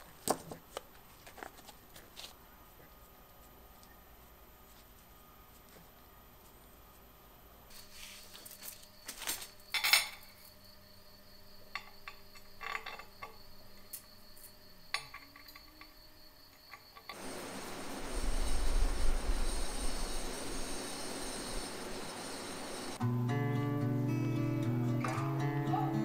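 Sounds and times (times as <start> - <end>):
metal spokes clinking: 11.7 - 13.4.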